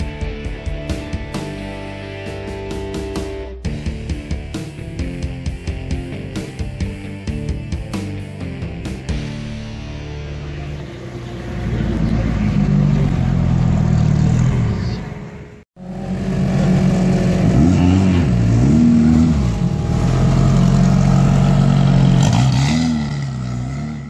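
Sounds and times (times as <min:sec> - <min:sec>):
buggy engine revving: 0:10.4 - 0:24.0.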